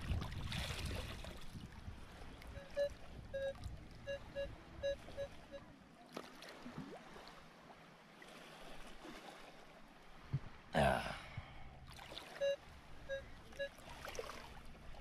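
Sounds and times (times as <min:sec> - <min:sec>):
shallow water sloshing: 0:00.0 - 0:10.7, 0:11.8 - 0:15.0
metal detector beeps: 0:02.6 - 0:05.7, 0:12.4 - 0:13.8.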